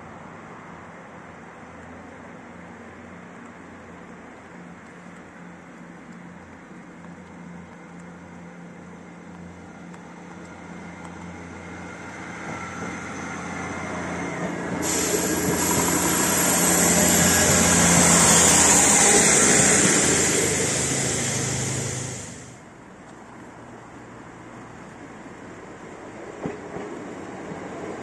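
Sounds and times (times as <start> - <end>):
train wheels on rails: 3.4 - 22.6, 25.8 - 28.0
diesel train engine: 4.6 - 22.7.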